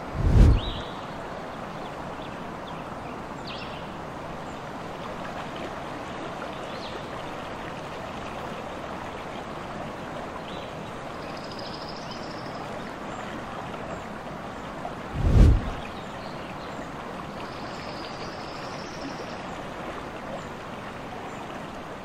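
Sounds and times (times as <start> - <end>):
stream water rushing: 0.0 - 11.2, 12.5 - 22.0.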